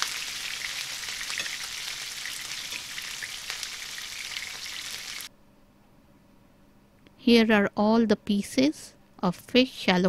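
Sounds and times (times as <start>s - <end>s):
fish sizzling in hot oil: 0.0s - 5.3s.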